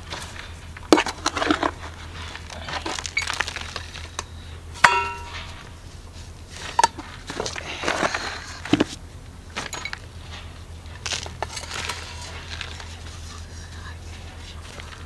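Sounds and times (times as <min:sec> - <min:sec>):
metal scoop scraping soil: 0:00.1 - 0:04.0.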